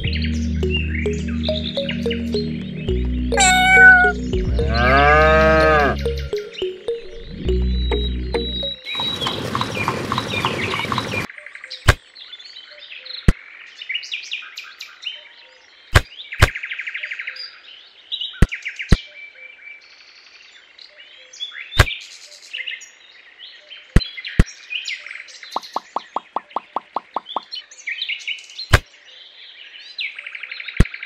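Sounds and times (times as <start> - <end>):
music: 0.0 - 9.0
birds chirping: 0.0 - 12.0, 24.0 - 28.8.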